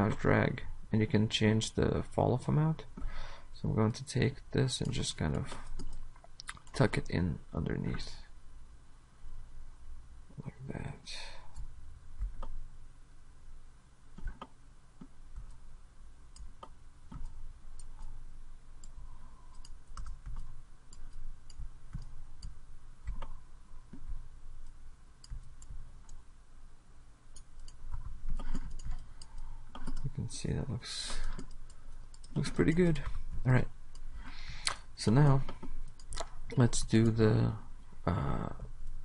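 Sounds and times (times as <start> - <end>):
faint low hum: 0.0 - 39.0
mouse and keyboard clicks: 27.4 - 30.1.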